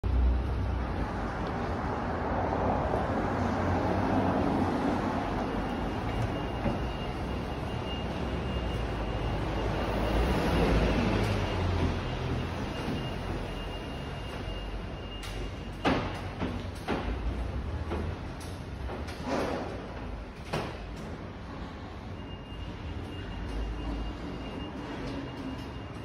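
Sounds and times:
low urban rumble: 0:00.0 - 0:26.0.

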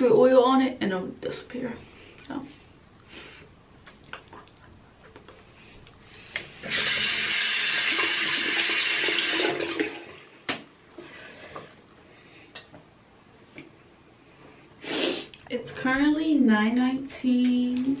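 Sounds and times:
sink tap running: 0:06.6 - 0:10.1.

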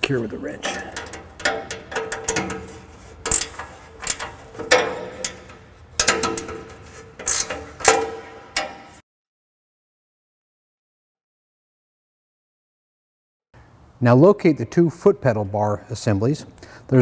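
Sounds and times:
wrench clicking on metal: 0:00.6 - 0:08.9.

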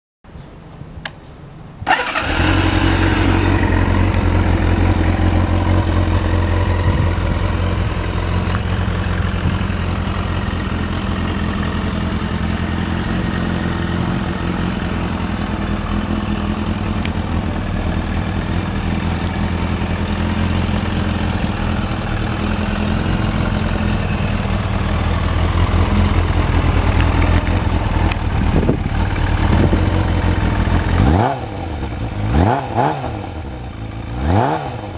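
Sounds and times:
engine throttle blips: 0:01.8 - 0:12.2
motorcycle engine starting and idling: 0:01.8 - 0:34.9.

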